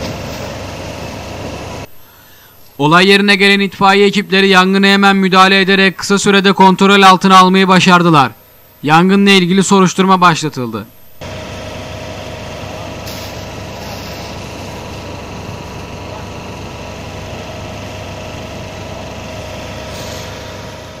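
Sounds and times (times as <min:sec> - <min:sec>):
fire truck engine idling: 0:00.0 - 0:02.2, 0:11.2 - 0:21.0.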